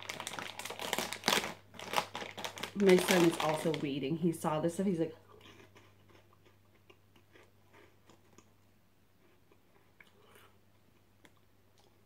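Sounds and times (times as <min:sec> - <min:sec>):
low steady hum: 0:00.0 - 0:12.0
person chewing crunchy snack: 0:05.3 - 0:12.0.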